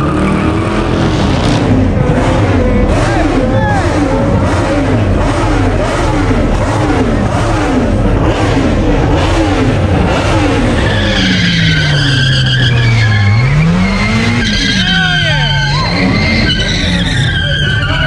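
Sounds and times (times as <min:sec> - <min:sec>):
car engine revving: 0:00.0 - 0:18.0
tyre squeal: 0:10.4 - 0:18.0.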